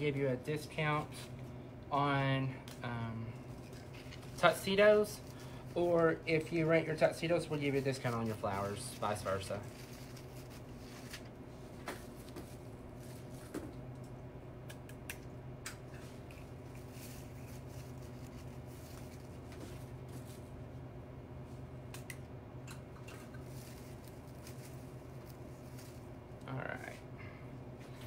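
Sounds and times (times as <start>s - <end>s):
steady low hum: 0.0s - 28.0s
rustling of foliage: 23.4s - 26.1s.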